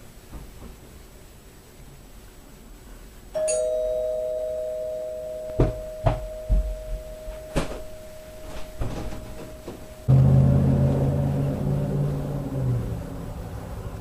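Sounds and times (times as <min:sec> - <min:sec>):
two-tone doorbell chime: 0:03.4 - 0:11.4.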